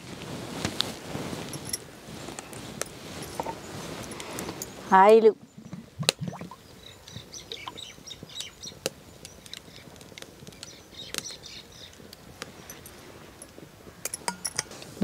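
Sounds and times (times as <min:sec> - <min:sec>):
faint birds chirping: 0:02.3 - 0:14.1.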